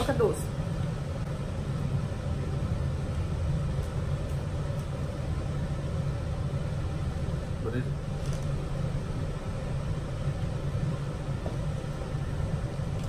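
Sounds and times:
low background hum and rumble: 0.0s - 13.0s.

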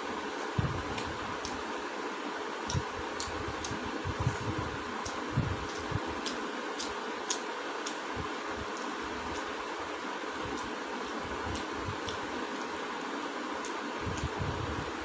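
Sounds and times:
steady background hiss: 0.0s - 15.0s
person chewing food: 10.5s - 12.6s.

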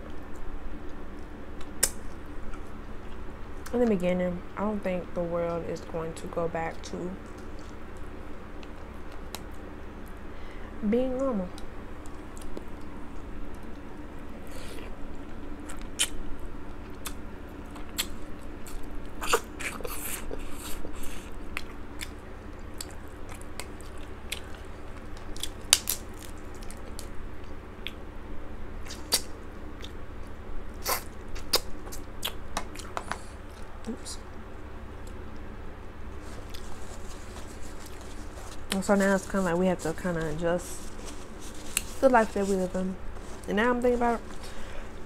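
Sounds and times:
crunching and chewing: 0.0s - 3.7s, 7.2s - 10.2s, 11.5s - 28.0s, 28.8s - 42.4s
crab shells cracking: 22.8s - 27.1s.

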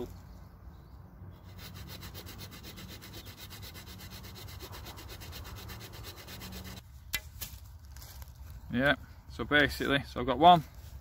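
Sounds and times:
saw cutting through stick: 1.4s - 6.8s.

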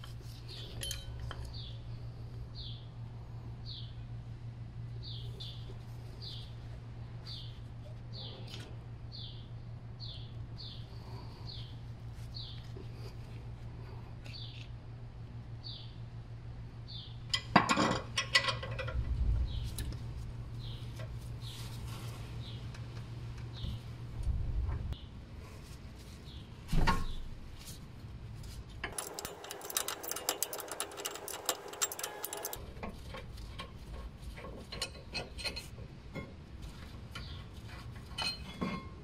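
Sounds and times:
metal clinks and knocks: 0.6s - 1.5s, 28.8s - 32.6s.

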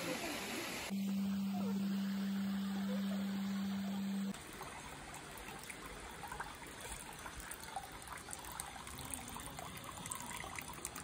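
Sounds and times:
water trickling into basin: 4.3s - 11.0s.

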